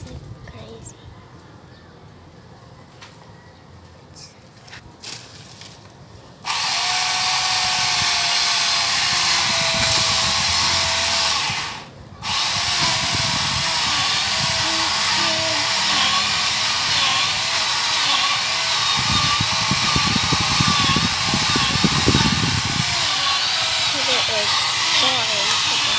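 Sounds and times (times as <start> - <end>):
chainsaw attachment whining: 6.4 - 25.9.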